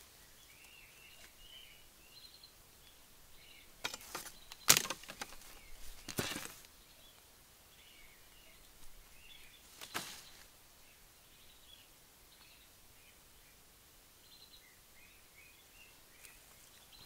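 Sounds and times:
faint birds chirping: 0:00.0 - 0:17.0
footsteps crunching dry leaves: 0:03.9 - 0:06.6, 0:09.6 - 0:10.5.

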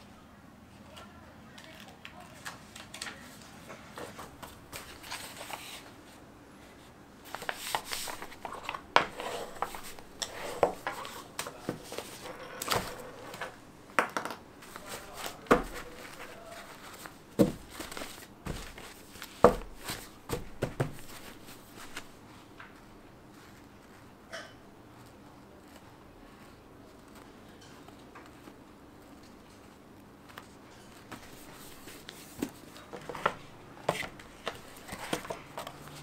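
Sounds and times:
paper rustling and flicking: 0:04.0 - 0:06.1, 0:07.2 - 0:13.6, 0:14.6 - 0:24.1
paper stack knocking on table: 0:07.3 - 0:22.1.

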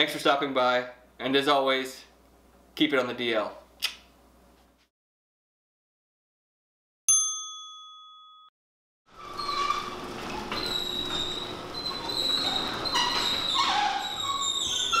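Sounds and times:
bell-like ding: 0:07.1 - 0:08.5
garage door rumbling and squealing: 0:09.1 - 0:15.0.

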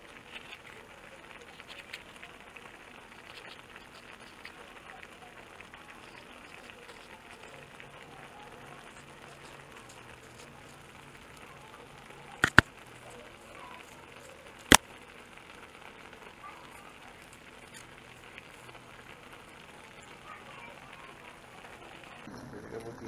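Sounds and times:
stew sizzling in a pan: 0:00.0 - 0:23.0
sharp clicks: 0:12.4 - 0:12.9.

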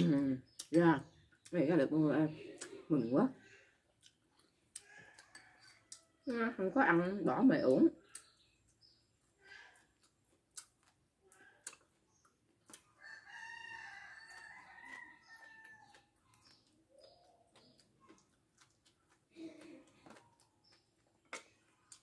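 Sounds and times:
rooster crowing: 0:13.0 - 0:15.9.

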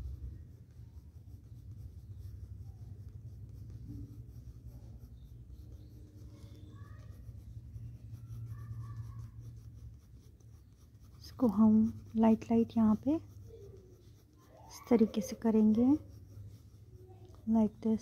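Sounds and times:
pencil scratching on paper: 0:00.0 - 0:18.0.

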